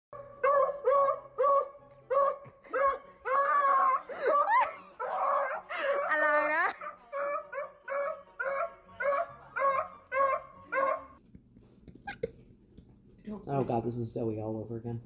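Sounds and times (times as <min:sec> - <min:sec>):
dog baying barks: 0:00.2 - 0:11.2
dog howling: 0:00.2 - 0:11.2.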